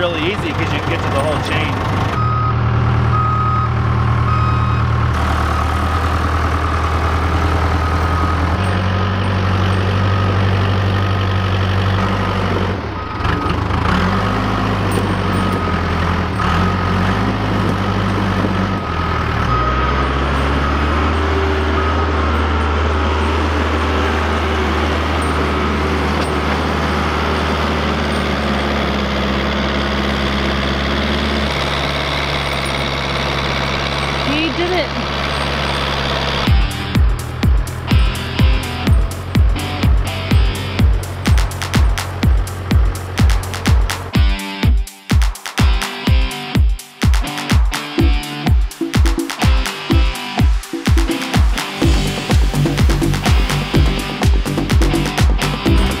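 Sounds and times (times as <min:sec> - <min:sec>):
diesel engine running: 0:00.0 - 0:44.6, 0:47.8 - 0:56.0
back-up alarm beeping: 0:02.2 - 0:05.9, 0:07.6 - 0:08.9, 0:14.8 - 0:16.9, 0:19.3 - 0:26.5.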